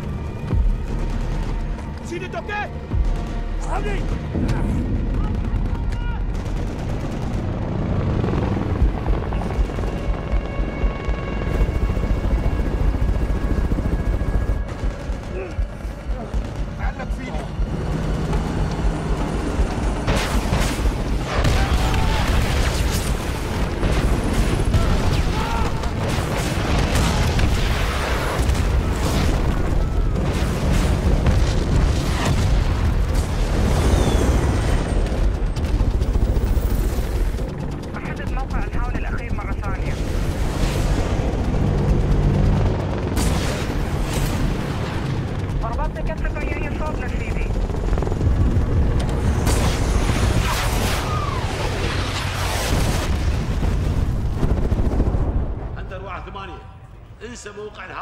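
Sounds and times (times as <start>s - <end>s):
helicopter rotor beating: 0.0s - 56.4s
film score music: 0.0s - 58.0s
rocket explosions: 20.0s - 35.8s, 49.2s - 55.8s.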